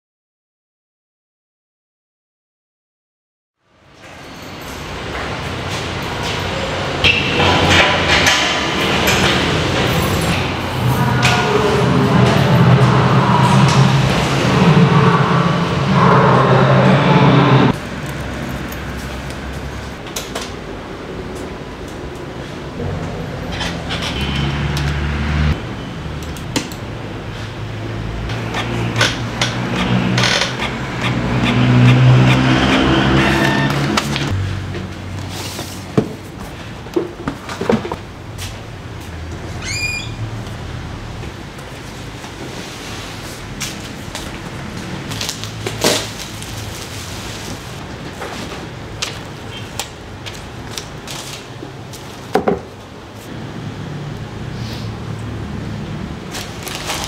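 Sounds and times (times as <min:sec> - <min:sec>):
packaging rustles and crinkles: 0:45.1 - 0:49.3, 0:50.3 - 0:52.3, 0:56.3 - 0:57.0.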